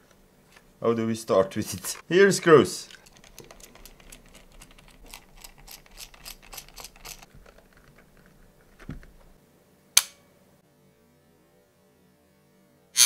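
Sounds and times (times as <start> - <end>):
sharp plastic snap: 10.0 - 10.2.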